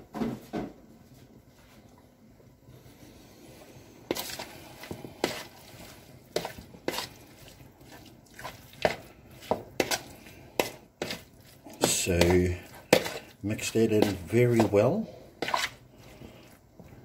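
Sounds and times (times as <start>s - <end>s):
metal spoon scraping plastic bowl: 9.8s - 14.8s, 15.4s - 15.8s.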